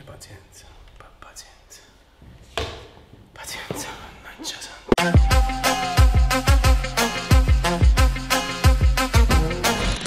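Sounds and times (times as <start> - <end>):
bass line: 5.0 - 10.0.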